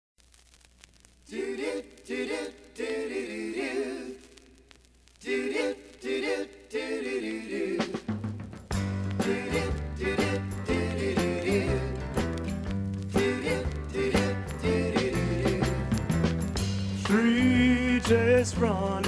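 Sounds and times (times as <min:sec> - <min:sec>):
vinyl surface crackle: 0:00.2 - 0:19.0
voices singing in harmony: 0:01.3 - 0:04.5, 0:05.2 - 0:08.2, 0:08.9 - 0:12.4, 0:13.1 - 0:16.2, 0:16.9 - 0:19.0
bass and band playing: 0:08.0 - 0:19.0.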